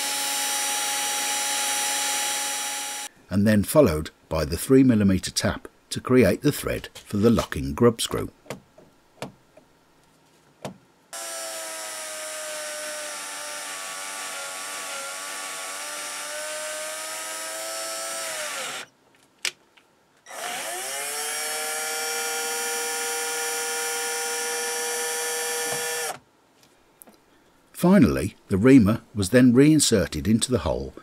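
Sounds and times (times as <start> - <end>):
electric motor running: 0.0 - 3.1, 11.2 - 18.9.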